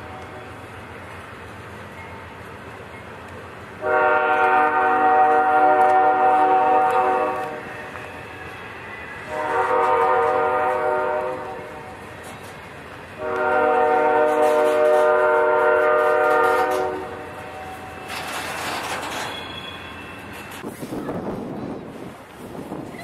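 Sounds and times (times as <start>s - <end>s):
locomotive air horn blasts: 3.8s - 8.0s, 9.2s - 11.9s, 13.2s - 17.9s.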